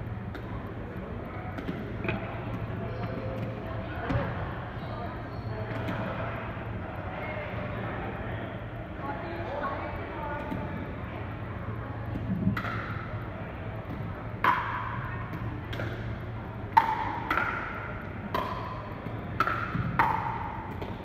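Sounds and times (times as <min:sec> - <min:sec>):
ball bouncing: 0:12.1 - 0:13.1, 0:13.8 - 0:21.0
paddles hitting plastic ball: 0:12.1 - 0:13.2, 0:13.8 - 0:21.0.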